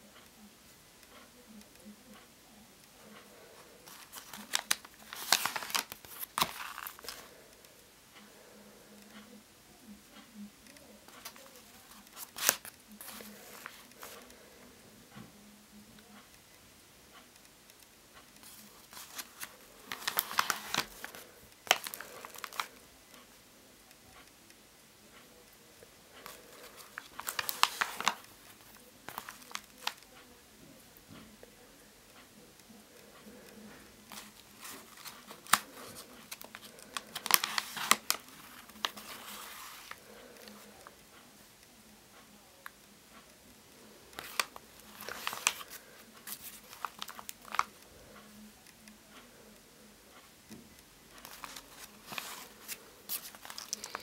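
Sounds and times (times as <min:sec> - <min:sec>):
paper pages crinkling and rustling: 0:03.8 - 0:07.3, 0:11.1 - 0:14.3, 0:18.4 - 0:22.8, 0:26.2 - 0:30.1, 0:34.1 - 0:40.9, 0:44.2 - 0:47.7, 0:51.2 - 0:54.0.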